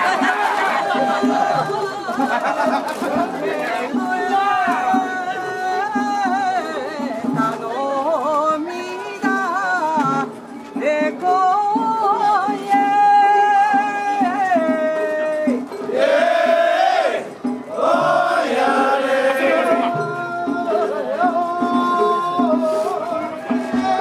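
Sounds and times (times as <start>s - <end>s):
solo voice chanting: 17.9s - 24.0s.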